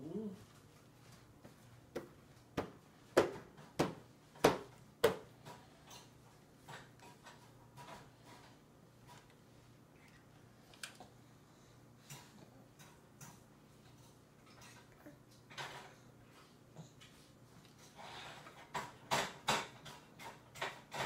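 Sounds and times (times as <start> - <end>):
hand slapping plastic tray: 1.9 - 5.3.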